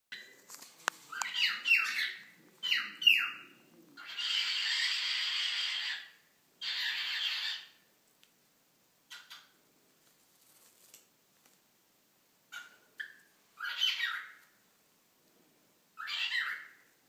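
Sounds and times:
cockatiel chirping: 1.1s - 7.8s, 9.1s - 9.6s, 12.5s - 14.5s, 16.0s - 16.9s
cockatiel squawking: 1.1s - 7.8s, 9.1s - 9.6s, 12.5s - 14.4s, 16.0s - 16.8s.

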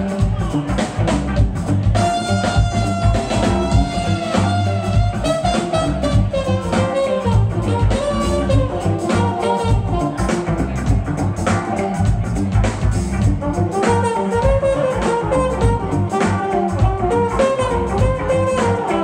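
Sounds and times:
funk band playing: 0.0s - 19.0s
sliding lead melody notes: 0.0s - 19.0s.

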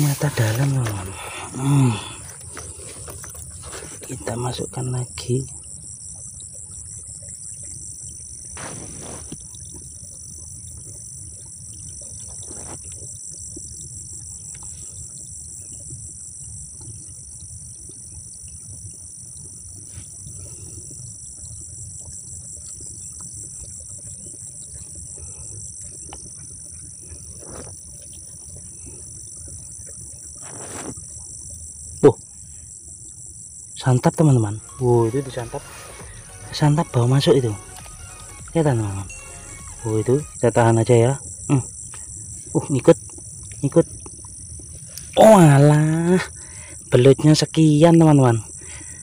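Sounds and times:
crickets shrilling: 0.0s - 17.4s, 19.2s - 49.0s
faint rustles: 8.6s - 9.5s, 30.4s - 31.0s.

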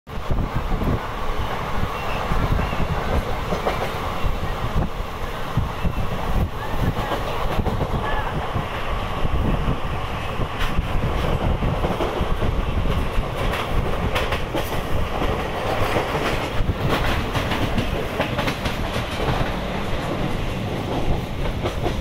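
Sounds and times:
train rumble: 0.1s - 22.0s
wheels clicking over rail joints: 10.6s - 22.0s.

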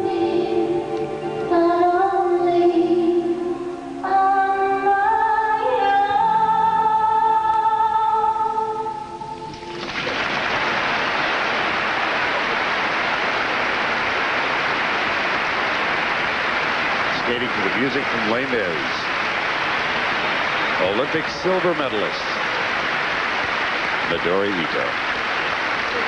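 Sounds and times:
music with long held notes: 0.0s - 26.0s
crowd applause and cheering: 9.6s - 26.0s.

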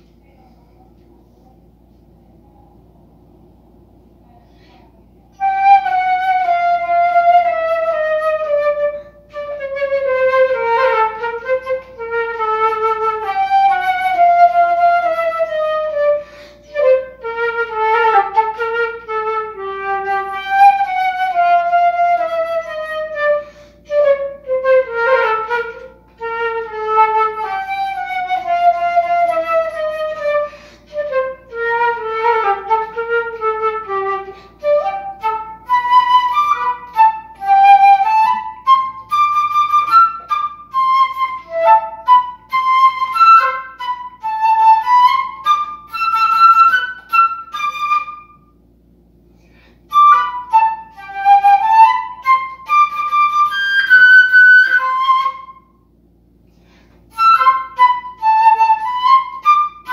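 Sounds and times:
solo flute: 4.8s - 48.6s, 49.8s - 56.0s, 57.0s - 59.9s
flute player breaths: 16.2s - 16.7s, 23.4s - 23.9s, 30.5s - 30.9s, 49.2s - 49.9s, 56.4s - 57.1s.

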